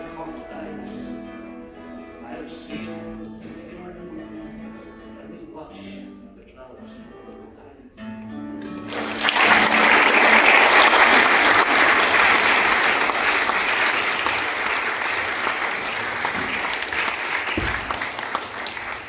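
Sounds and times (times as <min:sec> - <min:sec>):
audience applauding: 0:08.7 - 0:19.0.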